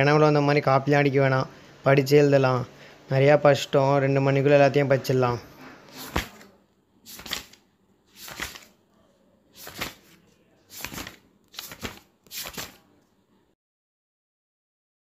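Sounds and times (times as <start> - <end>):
notebook pages turning: 5.8 - 6.5, 7.1 - 8.8, 9.5 - 12.9.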